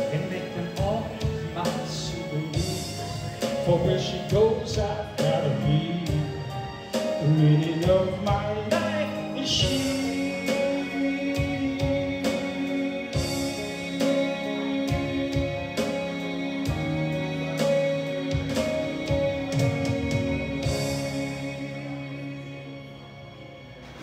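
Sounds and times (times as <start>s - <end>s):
instrumental music with slow beat: 0.0s - 24.0s.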